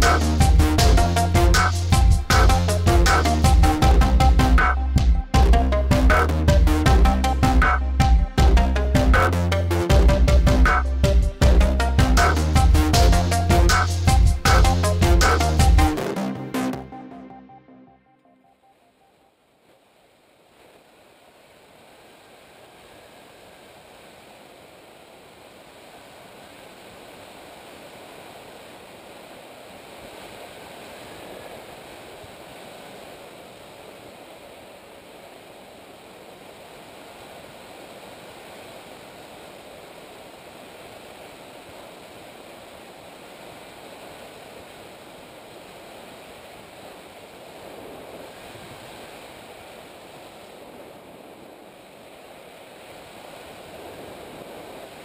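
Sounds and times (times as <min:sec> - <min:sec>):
rushing wind: 0:25.7 - 0:55.0.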